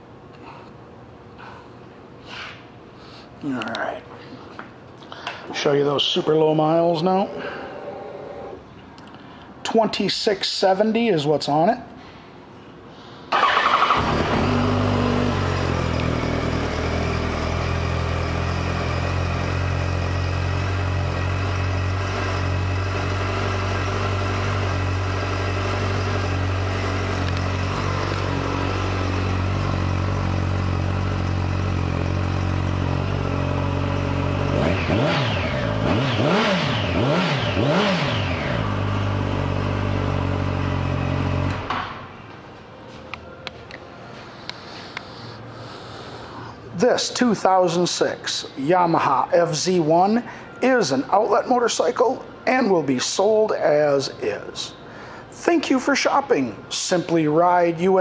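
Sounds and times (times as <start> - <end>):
engine revving: 13.4 - 30.2, 31.0 - 41.7
motorcycle engine idling: 13.4 - 36.2.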